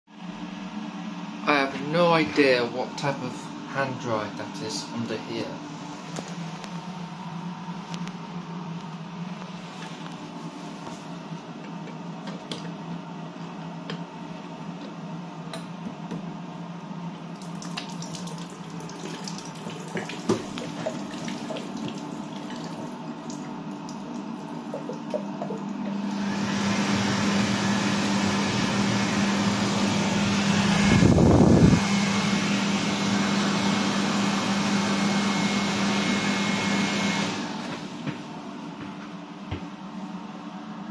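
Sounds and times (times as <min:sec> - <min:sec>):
hand dryer air rush: 0:24.8 - 0:38.4.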